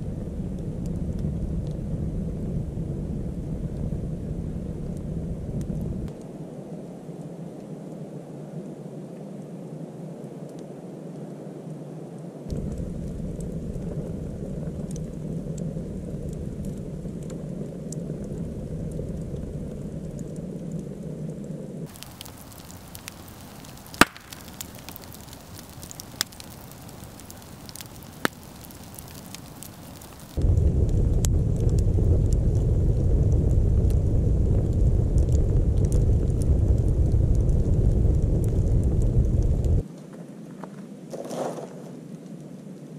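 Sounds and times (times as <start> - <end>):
fire crackling and popping: 0.0 - 6.4, 12.5 - 40.7
flames rushing: 12.5 - 20.7, 21.8 - 39.9.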